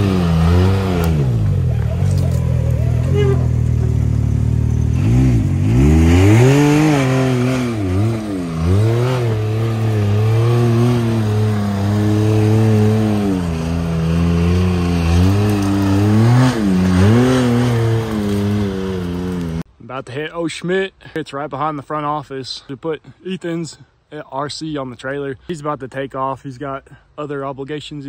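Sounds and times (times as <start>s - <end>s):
off-road vehicle engine revving: 0.0s - 19.7s.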